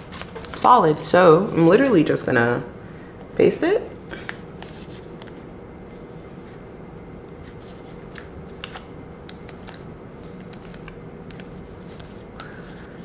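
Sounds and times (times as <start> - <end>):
tape crinkling and clicking: 0.0 - 0.8, 6.4 - 13.0
low room hum: 0.0 - 13.0.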